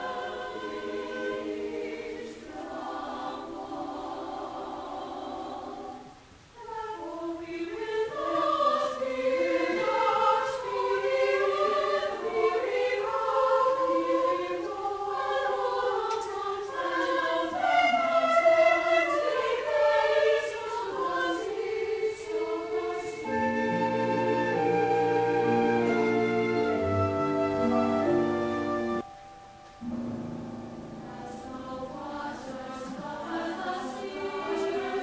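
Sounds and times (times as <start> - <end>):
mixed choir singing: 0.0 - 29.0, 30.9 - 35.0
orchestra playing: 23.2 - 29.2, 29.8 - 31.6.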